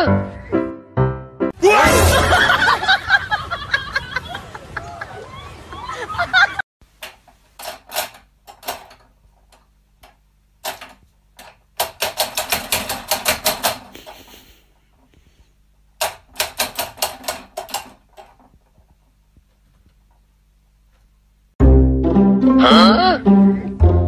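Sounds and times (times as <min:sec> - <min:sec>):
cat pawing clock pendulum clicking: 0:07.0 - 0:14.0, 0:16.0 - 0:18.6.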